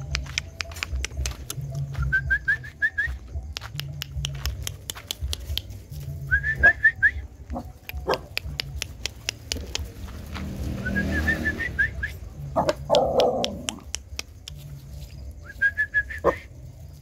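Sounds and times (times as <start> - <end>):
sharp clicks: 7.8 - 10.1.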